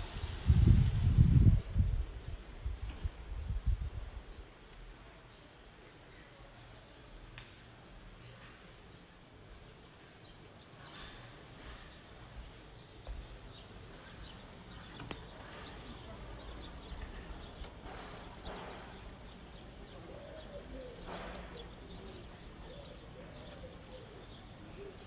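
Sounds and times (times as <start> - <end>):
bird cooing: 17.0 - 25.0.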